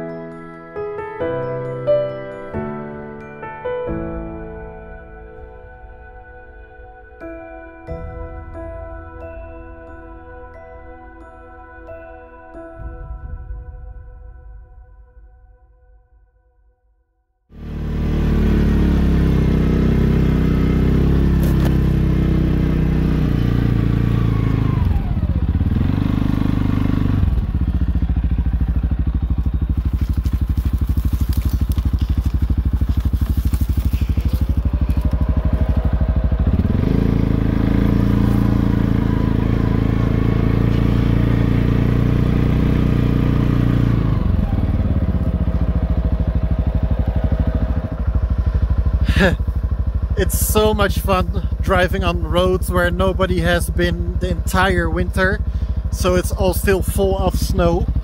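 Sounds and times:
atv engine revving: 0:17.5 - 0:58.0.

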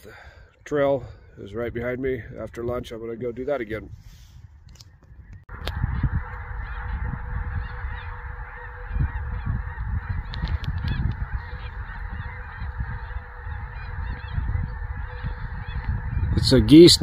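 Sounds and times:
geese honking in flight: 0:05.5 - 0:17.0.

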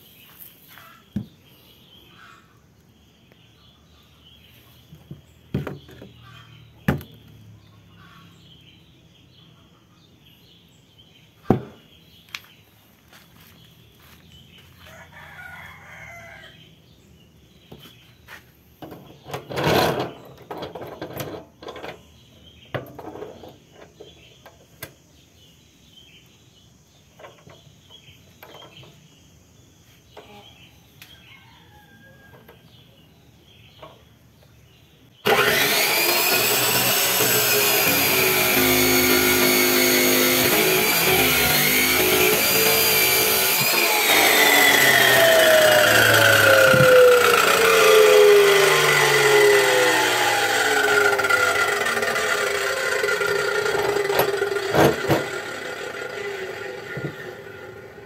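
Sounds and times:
rooster crowing: 0:14.7 - 0:16.7, 0:31.2 - 0:32.7
cut-off saw grinding metal: 0:35.2 - 0:58.0.

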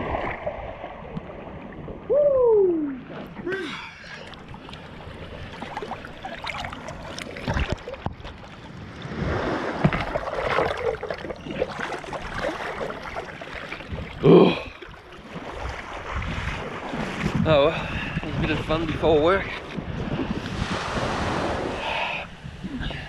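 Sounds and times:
water sloshing and splashing: 0:00.0 - 0:21.8
wind on microphone: 0:15.5 - 0:23.0.

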